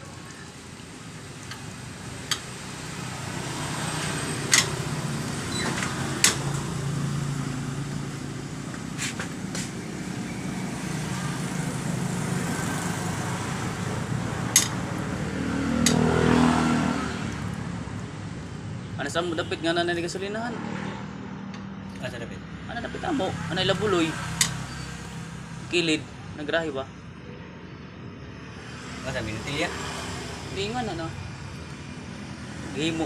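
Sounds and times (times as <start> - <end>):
sharp clicks and knocks: 1.4 - 2.5, 4.4 - 4.8, 5.6 - 6.7, 14.5 - 14.8, 15.8 - 16.1.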